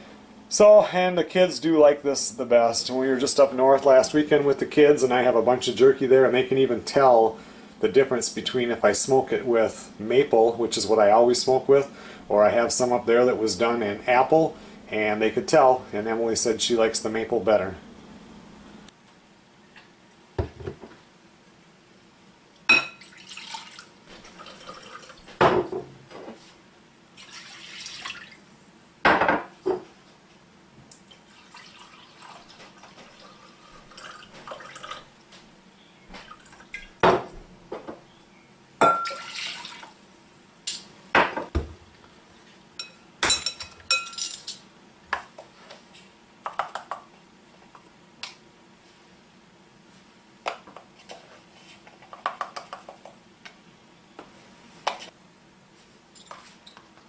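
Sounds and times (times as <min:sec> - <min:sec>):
bottles and bowls clinking: 0:38.8 - 0:39.6.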